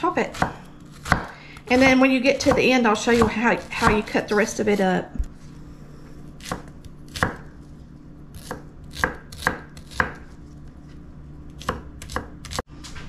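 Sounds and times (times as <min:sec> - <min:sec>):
knife chopping on wooden board: 0:00.3 - 0:05.3, 0:06.4 - 0:07.5, 0:08.4 - 0:10.3, 0:11.6 - 0:12.6.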